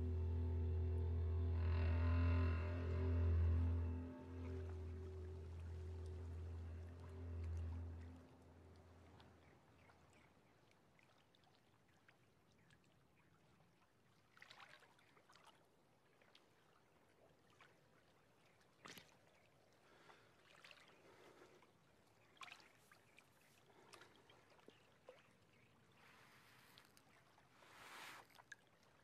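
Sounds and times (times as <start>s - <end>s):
water sloshing and splashing: 1.8s - 9.5s.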